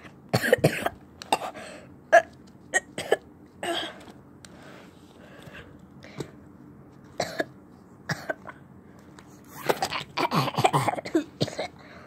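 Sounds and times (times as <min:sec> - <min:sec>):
child making cough-like noises: 0:09.6 - 0:11.8.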